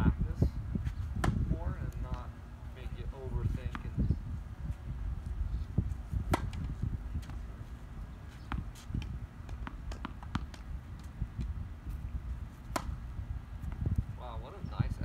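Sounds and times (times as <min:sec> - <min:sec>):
racket striking tennis ball: 0:01.2 - 0:01.5, 0:06.3 - 0:07.4, 0:08.5 - 0:10.7, 0:12.6 - 0:13.0
tennis balls bouncing on hard court: 0:01.2 - 0:02.3, 0:03.7 - 0:04.0, 0:06.3 - 0:07.4, 0:08.3 - 0:11.5, 0:12.6 - 0:13.9.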